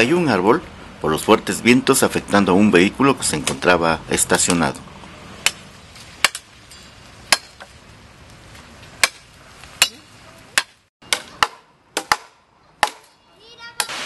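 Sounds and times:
blade chopping wood: 0:05.4 - 0:06.5, 0:08.9 - 0:13.1.

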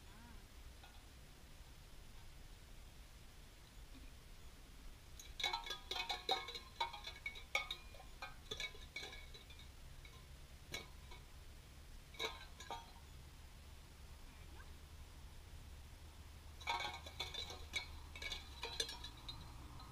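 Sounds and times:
tin cans clinking: 0:05.2 - 0:11.2, 0:12.2 - 0:13.0, 0:16.6 - 0:19.9.

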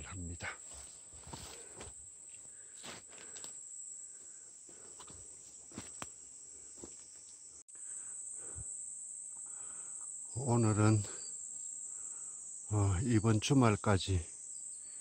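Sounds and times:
insects chirring: 0:00.0 - 0:15.0
footsteps through undergrowth: 0:00.5 - 0:03.6, 0:04.2 - 0:07.3.

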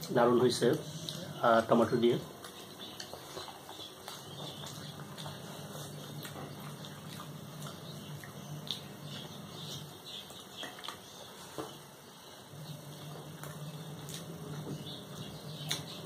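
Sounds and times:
chewing: 0:00.0 - 0:11.9, 0:12.5 - 0:16.0
steady low hum: 0:00.0 - 0:16.0.

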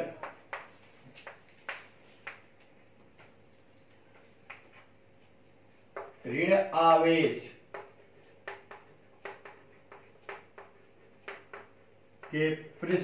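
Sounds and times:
chalk scratching on chalkboard: 0:07.7 - 0:12.4.

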